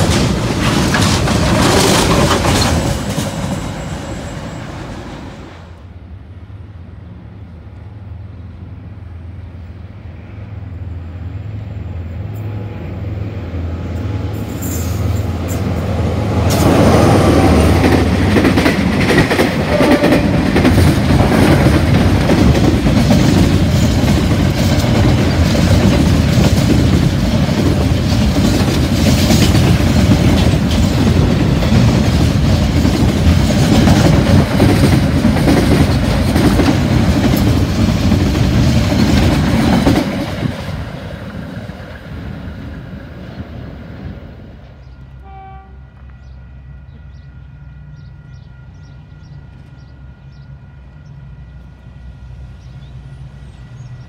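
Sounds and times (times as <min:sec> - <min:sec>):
locomotive low drone: 0:00.0 - 0:54.0
train wagons rumbling on rails: 0:00.0 - 0:54.0.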